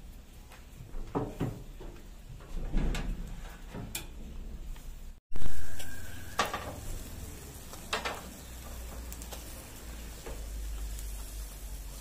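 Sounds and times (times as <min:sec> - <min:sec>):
metal grill baskets clanking: 0:00.9 - 0:04.7, 0:05.6 - 0:12.0
fish sizzling on a grill: 0:05.3 - 0:12.0.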